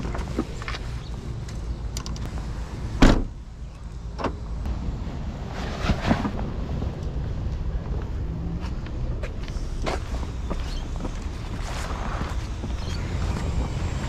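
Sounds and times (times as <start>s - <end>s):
steady low rumble: 0.0s - 14.0s
car door shutting: 3.0s - 3.4s.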